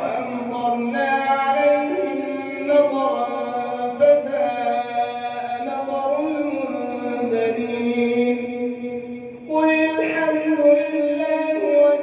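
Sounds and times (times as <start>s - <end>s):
person chanting melodically: 0.0s - 12.0s.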